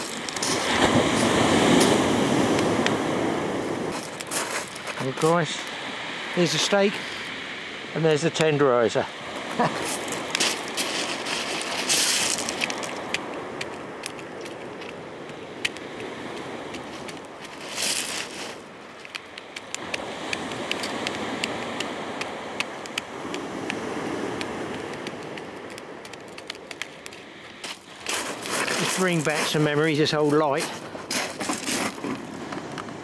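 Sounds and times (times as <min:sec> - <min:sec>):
wood fire crackling and popping: 0:09.9 - 0:15.9, 0:19.0 - 0:29.2.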